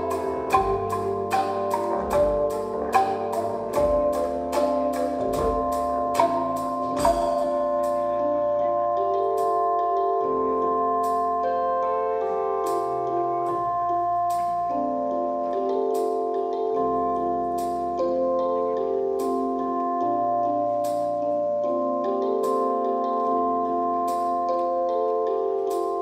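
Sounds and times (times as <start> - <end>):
high percussion taps: 0.0 - 8.0
sustained keyboard chords: 0.0 - 26.0
tuned percussion notes: 0.0 - 26.0.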